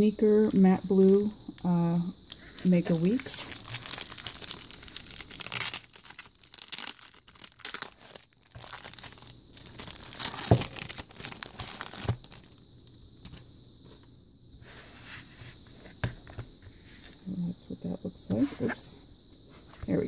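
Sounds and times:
plastic packaging tearing and crinkling: 2.5s - 12.6s.

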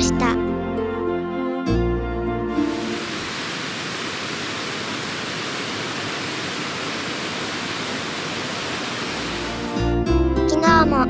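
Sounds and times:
waterfall rushing: 2.5s - 9.8s.

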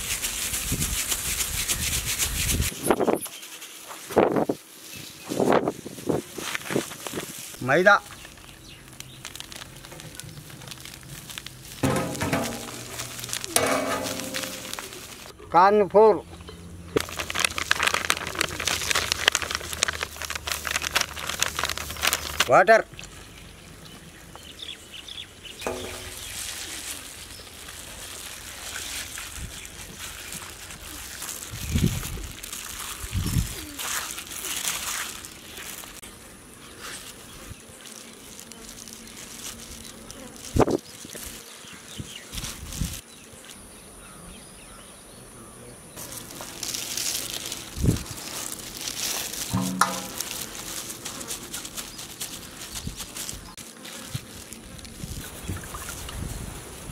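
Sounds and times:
ball rolling in breadcrumbs: 6.3s - 15.3s, 17.0s - 22.5s, 46.0s - 55.2s
birds chirping: 7.6s - 9.4s, 23.1s - 27.6s
high insect buzz: 33.4s - 44.6s, 46.0s - 55.2s.

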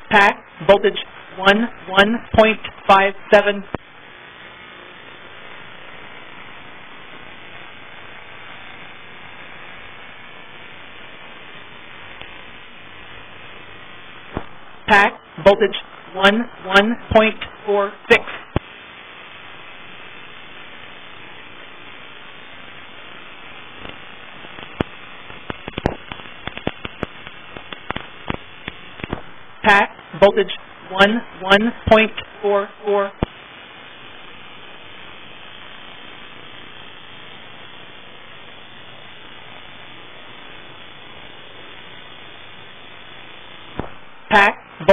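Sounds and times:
steady static hiss: 0.0s - 44.9s
sharp crackling clicks: 12.1s - 12.5s, 23.7s - 29.3s, 43.6s - 44.0s.

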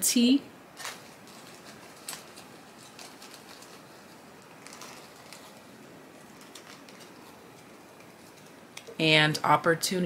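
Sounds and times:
room hiss: 0.0s - 10.0s.

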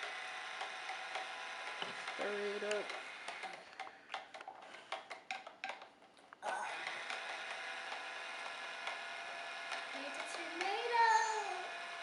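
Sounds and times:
plastic stick clicking in water tank: 0.6s - 5.9s.

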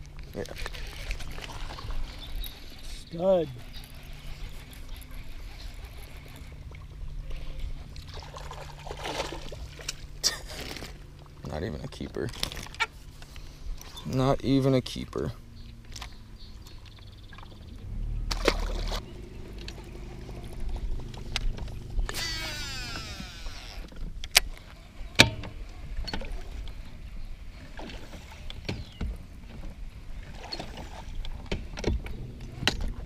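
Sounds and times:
fishing reel spool whirring: 0.5s - 8.8s, 17.8s - 24.0s
clicks and knocks of fishing tackle: 12.0s - 13.9s.

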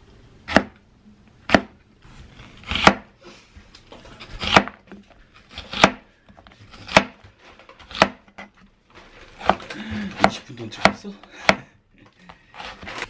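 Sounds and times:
knife slicing onion: 0.4s - 0.8s, 1.4s - 3.2s, 4.0s - 8.6s, 9.3s - 11.8s, 12.5s - 13.0s.

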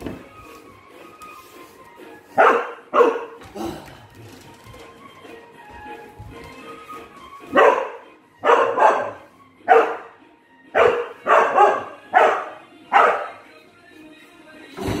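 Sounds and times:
dog barking: 2.4s - 3.4s, 7.5s - 13.4s.

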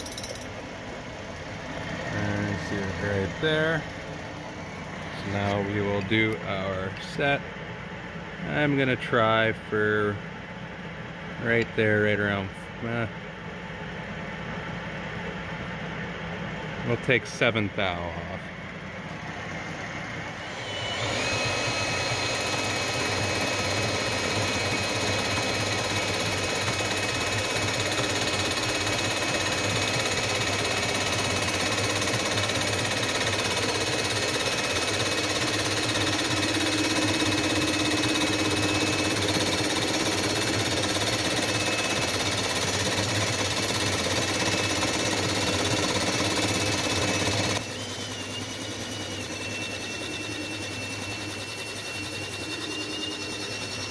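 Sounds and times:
milling machine high whine: 0.0s - 53.9s
metal cutting noise: 20.3s - 53.9s.

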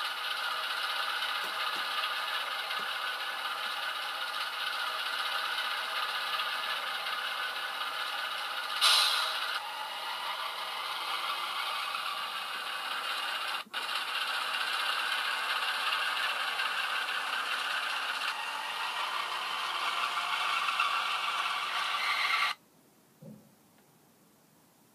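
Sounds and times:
model diesel engine sound: 0.0s - 22.6s.

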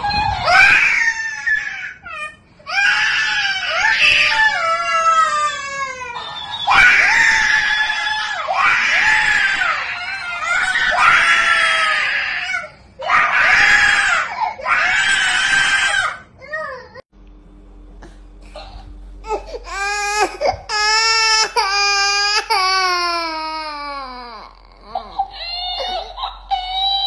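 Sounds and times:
toddler screaming and crying: 0.0s - 17.0s, 19.7s - 27.0s.

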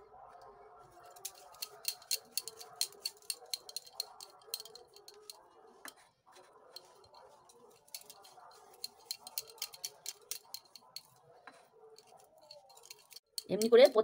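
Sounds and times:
bangles clinking: 1.0s - 5.4s, 6.7s - 11.2s, 12.0s - 14.0s.

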